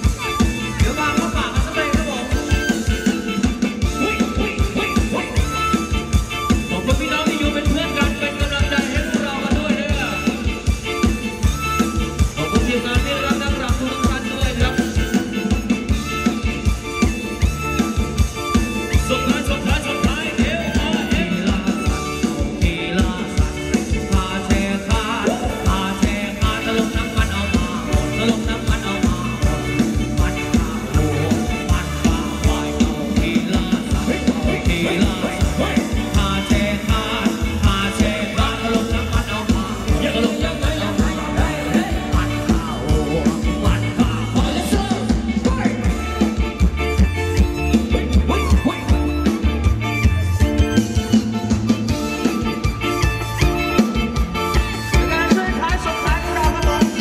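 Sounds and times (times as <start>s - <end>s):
bass guitar: 0.0s - 57.0s
drum kit beat: 0.0s - 57.0s
electric guitar: 0.0s - 57.0s
live band dance music: 0.0s - 57.0s
person singing: 18.8s - 46.6s, 54.5s - 57.0s.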